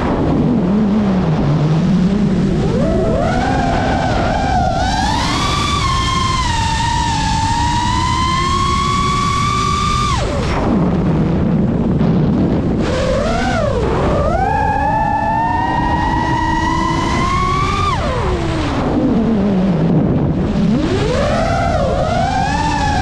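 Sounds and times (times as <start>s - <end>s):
quadcopter motors whining: 1.7s - 10.6s, 12.8s - 19.8s, 20.5s - 23.0s.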